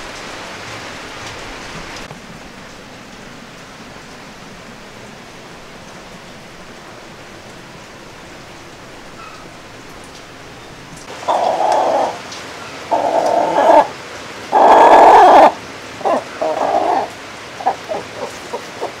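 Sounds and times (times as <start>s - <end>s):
hen clucking: 11.1s - 13.9s, 14.5s - 19.0s
hen squawking: 11.1s - 19.0s.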